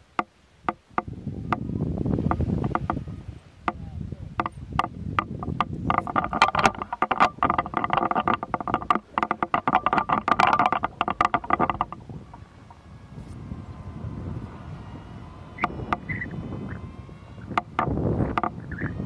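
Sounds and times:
low wind rumble: 0.0s - 19.0s
camera knocking and rattling: 2.2s - 3.0s, 4.4s - 13.9s, 15.6s - 19.0s.

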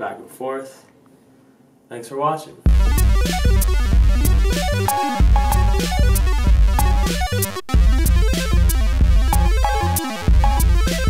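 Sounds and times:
music with heavy bass and beat: 2.7s - 11.0s.

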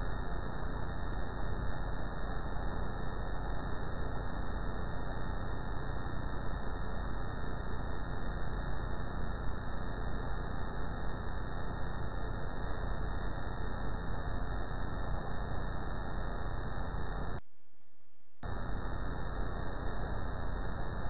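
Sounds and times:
electrical hum: 0.0s - 17.4s, 18.4s - 21.0s
static hiss: 0.0s - 17.4s, 18.4s - 21.0s.

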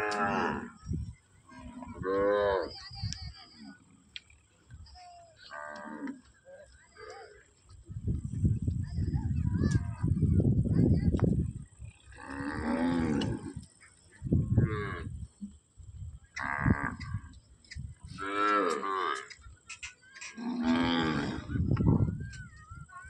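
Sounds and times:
cattle mooing: 0.0s - 0.8s, 20.4s - 21.5s.

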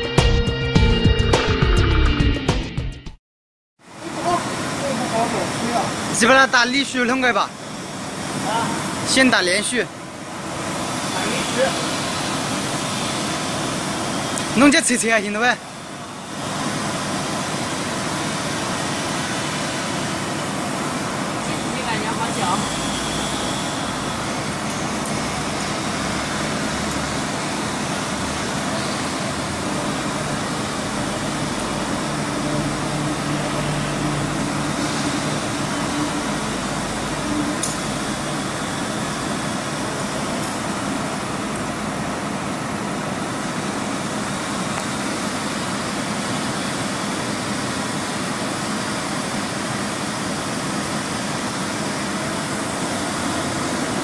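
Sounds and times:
hydraulic power unit whirring: 4.1s - 54.0s
pitched hum: 20.8s - 42.6s
click: 37.6s - 37.8s.

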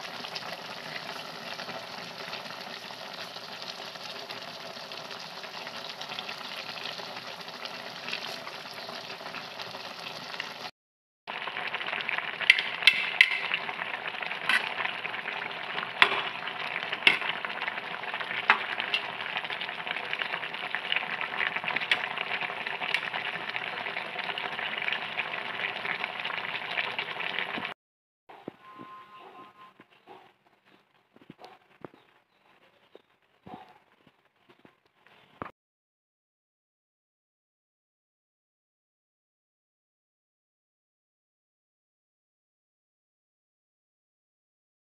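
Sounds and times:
broth simmering and sizzling: 0.0s - 10.7s, 11.3s - 27.8s
metal spatula scraping a pan: 12.4s - 20.4s, 21.0s - 24.0s.

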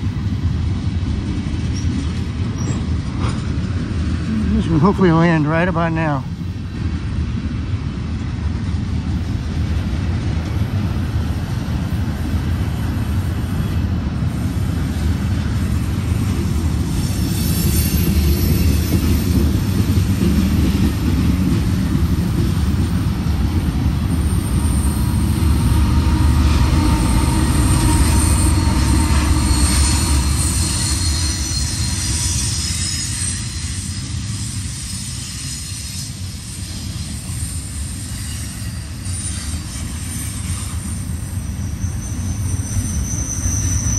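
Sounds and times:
train wheels rumbling on rail: 0.0s - 43.9s
high-pitched wheel squeal: 17.0s - 19.7s, 24.1s - 43.9s.

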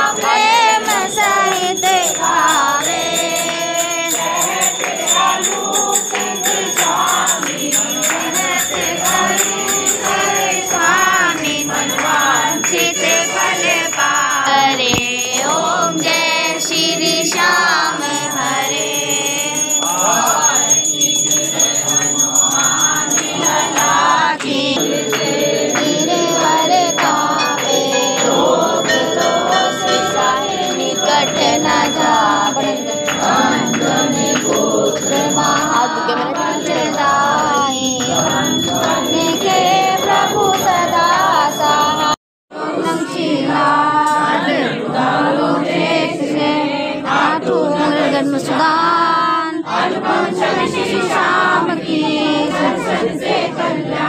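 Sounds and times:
temple bells ringing: 0.0s - 42.2s
group singing a hymn: 0.0s - 54.0s.

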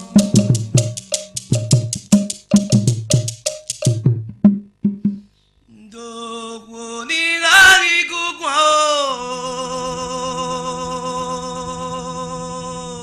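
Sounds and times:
person singing: 0.0s - 1.6s, 5.8s - 13.0s.

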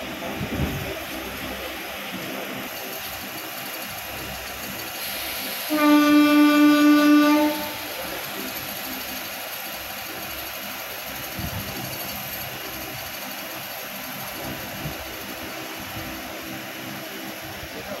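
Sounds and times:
train running noise: 0.0s - 18.0s
train horn blast: 5.6s - 8.0s.

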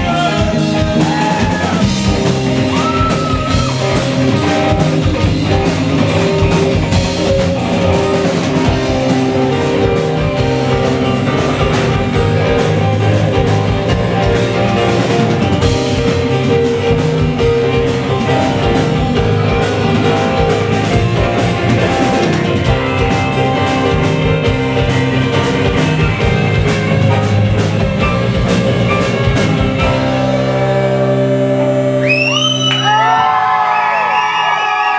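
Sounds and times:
live rock band playing: 0.0s - 34.9s
audience whooping: 0.8s - 4.7s, 31.9s - 34.9s.

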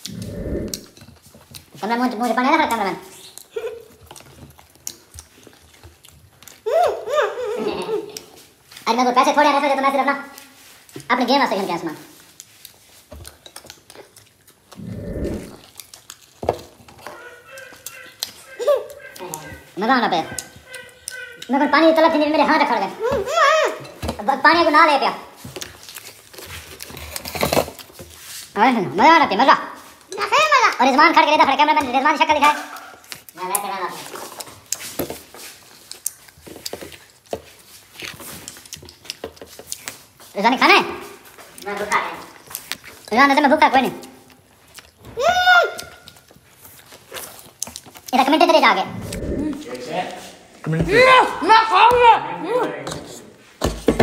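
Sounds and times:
low rumbling grunt: 0.0s - 0.9s, 14.8s - 15.6s, 48.8s - 49.7s
chewing sounds: 0.0s - 11.1s, 11.9s - 22.7s, 25.4s - 28.5s, 32.2s - 40.4s, 41.1s - 45.1s, 45.7s - 50.3s.

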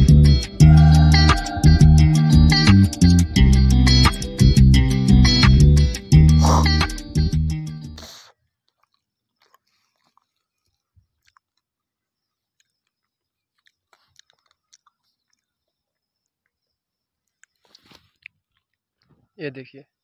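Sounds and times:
music track: 0.0s - 8.0s.

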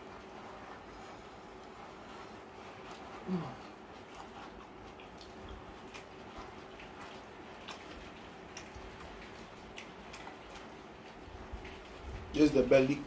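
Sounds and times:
wet chewing smacks: 0.0s - 12.4s
man humming mm: 3.2s - 3.7s.

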